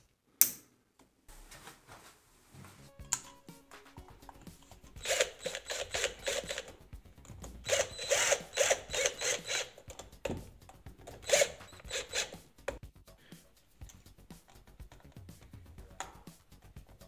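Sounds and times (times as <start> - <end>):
cordless drill driving screws: 5.0 - 6.8, 7.4 - 10.1, 11.1 - 12.4.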